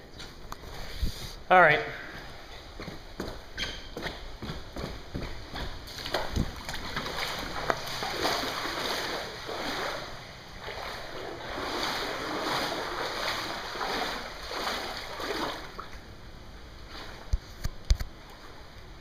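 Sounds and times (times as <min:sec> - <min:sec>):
water sloshing around wading legs: 0:04.2 - 0:16.2, 0:16.8 - 0:19.0.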